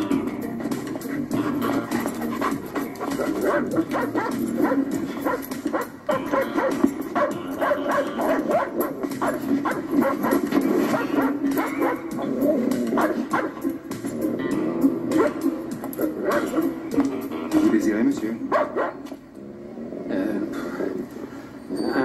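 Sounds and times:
background music: 0.0s - 22.0s
dog barking: 2.2s - 12.3s, 12.9s - 13.8s, 15.1s - 16.8s, 18.5s - 19.1s.

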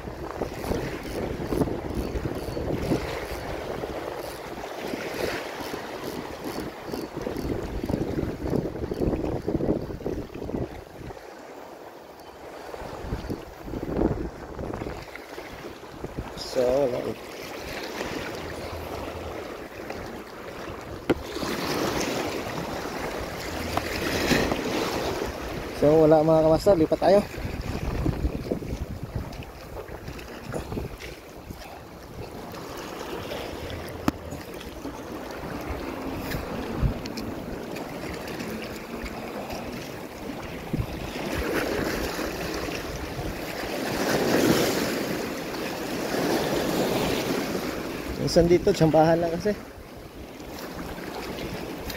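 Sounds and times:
wind on microphone: 0.0s - 11.2s, 12.7s - 45.3s
sea water lapping over rocks: 0.0s - 51.9s.

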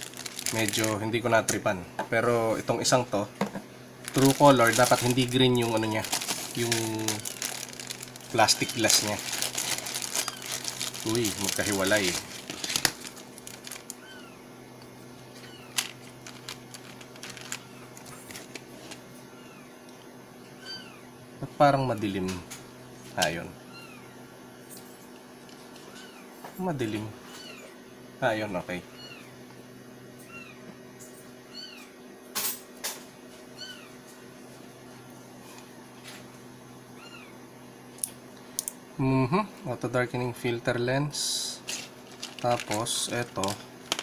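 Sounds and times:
cat meowing: 13.9s - 14.4s.

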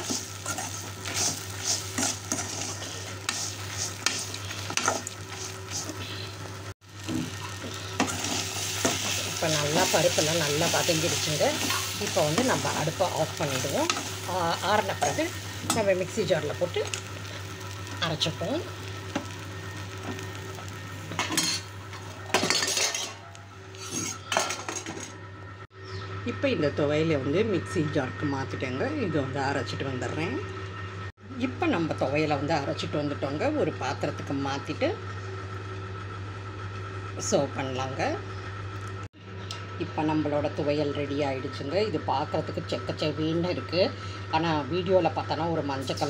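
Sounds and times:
metal spoon scraping a pan: 0.0s - 6.0s, 7.4s - 12.7s, 22.3s - 24.7s
food sizzling in oil: 0.0s - 24.8s
ladle scraping a metal pan: 23.8s - 24.4s.

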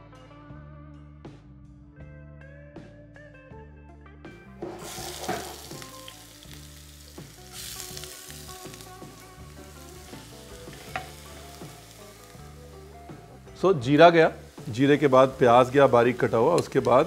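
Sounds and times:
soft guitar music: 0.0s - 17.0s
onions sizzling in oil: 4.6s - 17.0s.

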